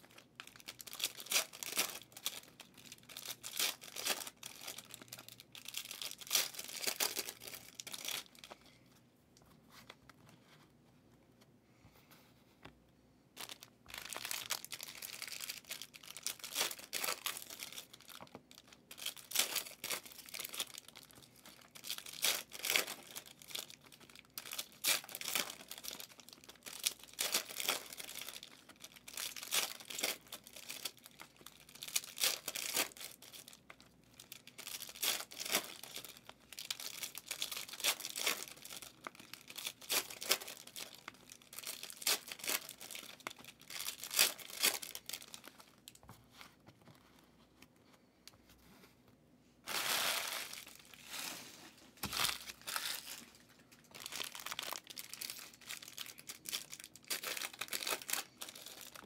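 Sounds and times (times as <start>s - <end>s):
card pack wrappers tearing: 0.2s - 8.5s, 13.5s - 18.2s, 18.9s - 33.6s, 34.2s - 45.6s, 52.0s - 59.0s.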